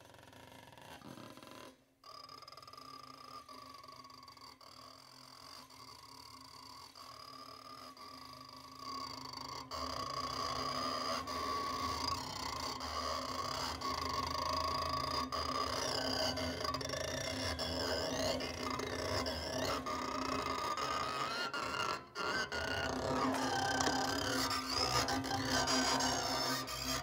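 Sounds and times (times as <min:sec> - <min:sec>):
bow scraping wires: 0:15.8 - 0:27.0.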